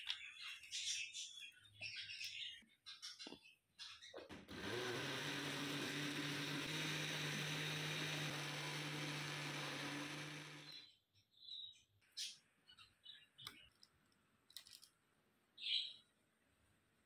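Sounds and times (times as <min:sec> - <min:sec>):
electric blender whirring: 0:04.5 - 0:10.9.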